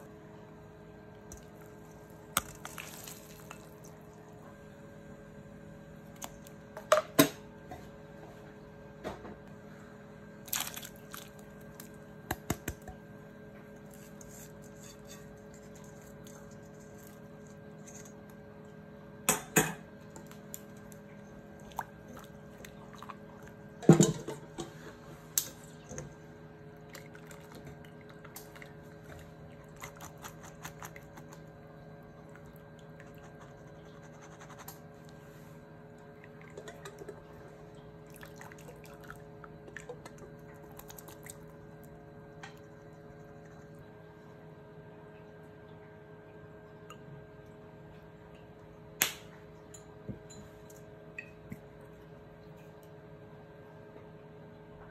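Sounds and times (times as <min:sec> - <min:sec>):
water bubbling in a saucepan: 0:00.2 - 0:06.7, 0:10.9 - 0:29.8, 0:30.6 - 0:34.1, 0:34.8 - 0:53.6.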